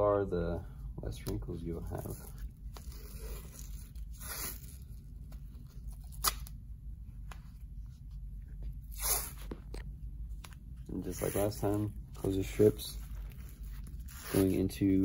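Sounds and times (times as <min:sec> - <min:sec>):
tape crackles and clicks: 0:01.1 - 0:06.6
tape ripping: 0:01.9 - 0:06.6, 0:08.9 - 0:09.8, 0:11.1 - 0:15.0.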